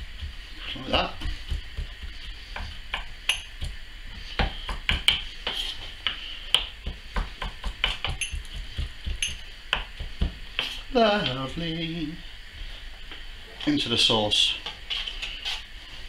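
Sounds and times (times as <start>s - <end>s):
knife chopping on wooden board: 1.0s - 3.8s, 4.4s - 10.8s.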